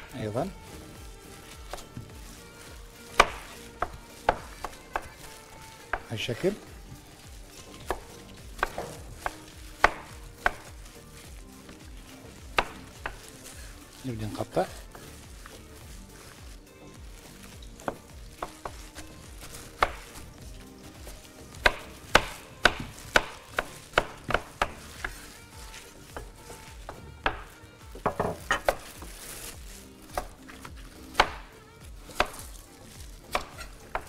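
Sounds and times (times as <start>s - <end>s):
knife chopping on cutting board: 1.7s - 2.1s, 3.1s - 6.1s, 7.6s - 10.7s, 12.5s - 13.4s, 17.8s - 19.0s, 19.7s - 20.2s, 21.0s - 25.3s, 26.2s - 29.0s, 30.1s - 31.5s, 32.1s - 32.5s, 33.3s - 34.0s.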